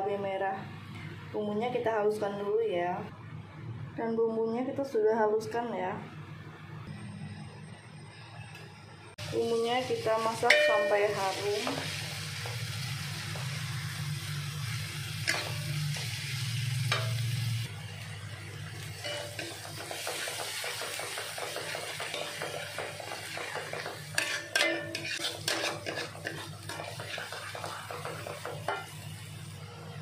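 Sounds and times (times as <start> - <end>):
paste sizzling in oil: 9.3 - 29.6
spatula clanking on wok: 10.5 - 12.0, 16.9 - 17.4, 19.0 - 29.0
metal spatula scraping wok: 14.7 - 17.7, 19.0 - 29.1.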